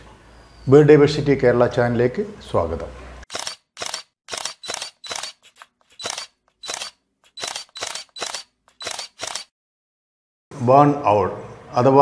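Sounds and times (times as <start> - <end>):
camera shutter clicks: 3.3 - 9.5.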